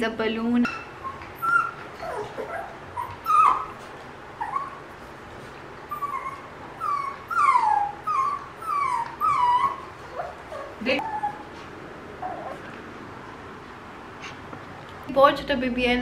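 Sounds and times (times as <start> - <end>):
puppy whining and yipping: 0.8 - 4.9, 5.8 - 11.6, 12.2 - 12.7.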